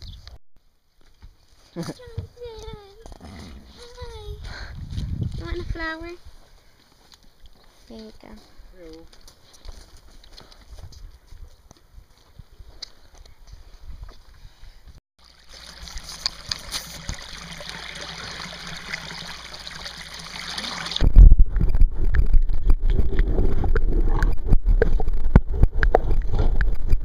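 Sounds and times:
water knocks and gurgles: 15.2 - 27.0.

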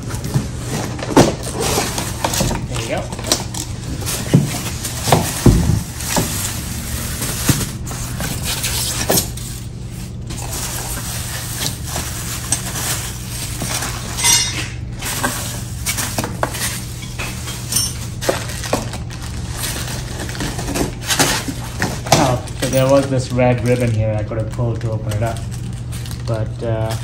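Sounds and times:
plastic wrapping crinkling: 0.0 - 27.0
metal pieces clinking: 14.2 - 14.7, 17.0 - 18.1.

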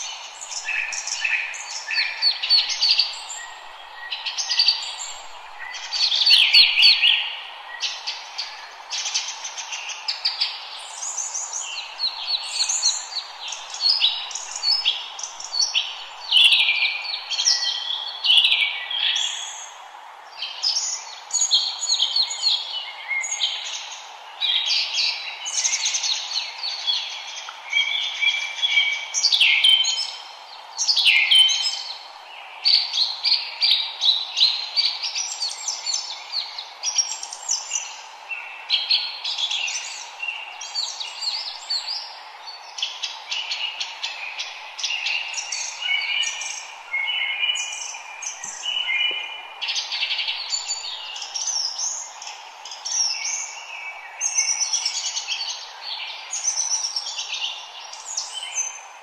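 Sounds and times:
forest birds singing: 0.0 - 59.0
steady background hiss: 0.0 - 59.0.

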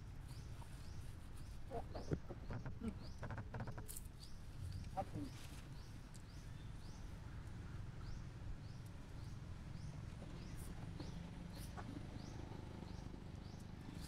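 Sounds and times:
low outdoor rumble: 4.4 - 14.0.

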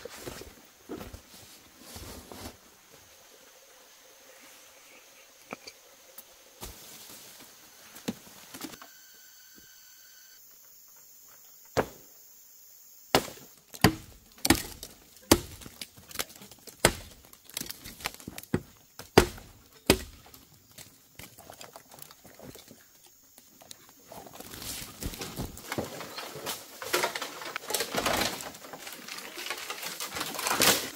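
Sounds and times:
hatchet chopping bamboo: 13.1 - 20.4.

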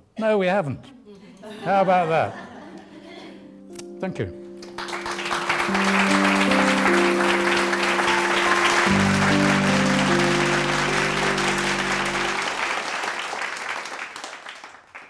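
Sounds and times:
music with slow held notes: 2.7 - 12.8
audience applauding: 4.6 - 15.0.

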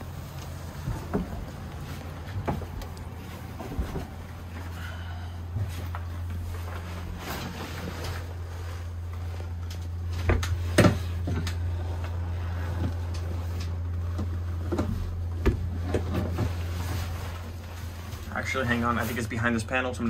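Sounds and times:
low equipment hum: 0.0 - 20.0
knocks and bumps: 0.4 - 4.7.

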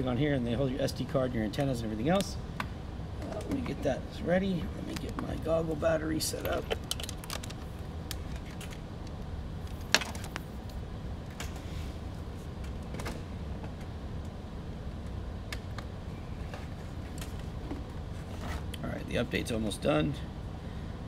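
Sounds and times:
portable fan humming: 0.0 - 21.0
small items clicking and rattling: 6.4 - 8.8.

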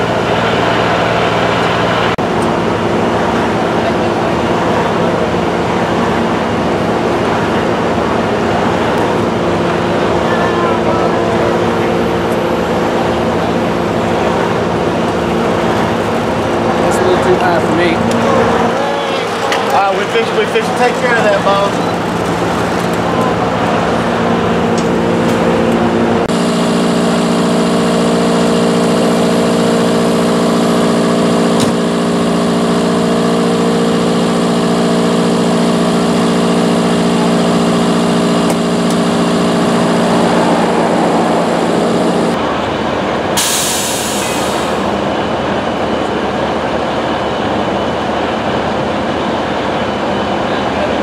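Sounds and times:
vehicle engines idling: 0.0 - 51.0
rough rumble: 34.7 - 43.4.

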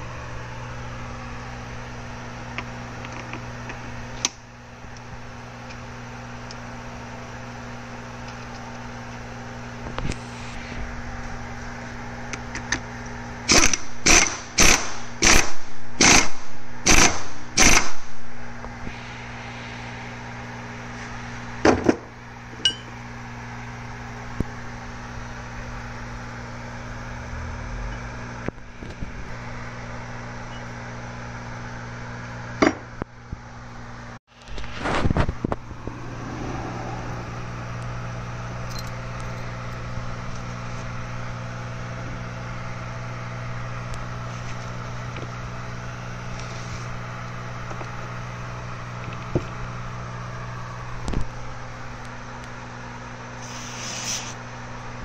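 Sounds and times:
impact wrench bursts: 13.5 - 18.0
low hum: 16.8 - 30.7, 33.0 - 44.2.

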